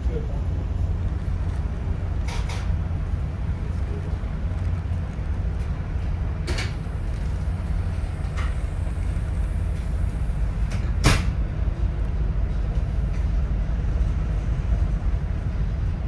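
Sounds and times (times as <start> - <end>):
train car rumbling: 0.0 - 16.0
sharp clunk: 10.7 - 11.4.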